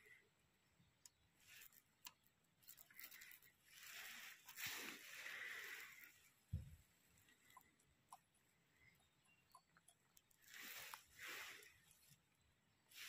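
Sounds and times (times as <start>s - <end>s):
soft rustle: 1.4s - 7.8s, 10.1s - 13.0s.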